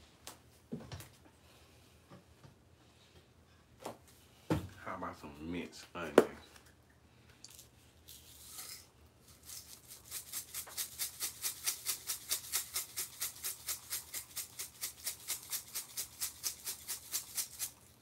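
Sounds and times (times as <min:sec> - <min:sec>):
spice shaker rattling: 0:07.4 - 0:18.0.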